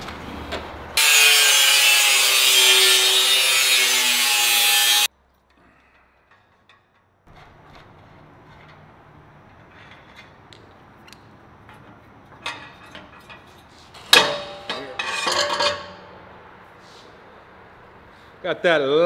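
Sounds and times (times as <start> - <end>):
sharp metallic clang: 14.1 - 16.3.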